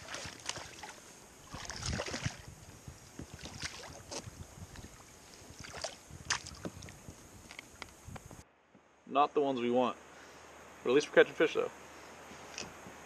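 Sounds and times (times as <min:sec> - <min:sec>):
small splashes and knocks: 0:00.0 - 0:02.5, 0:03.2 - 0:07.6.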